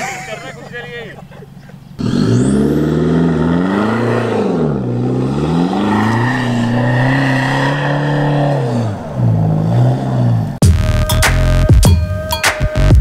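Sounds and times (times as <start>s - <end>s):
diesel engine revving: 0.0s - 11.7s.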